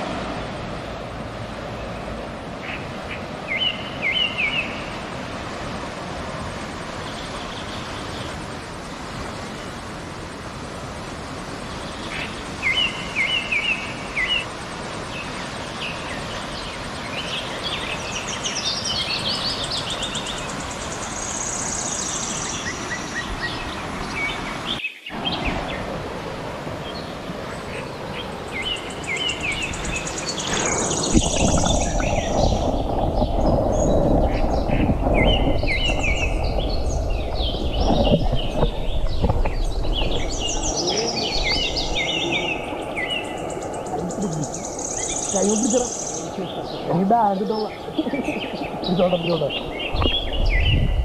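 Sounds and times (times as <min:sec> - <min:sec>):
river rushing: 0:00.0 - 0:51.0
birds chirping: 0:01.6 - 0:05.6, 0:11.6 - 0:26.0, 0:26.7 - 0:51.0
muffled underwater rush: 0:25.1 - 0:51.0.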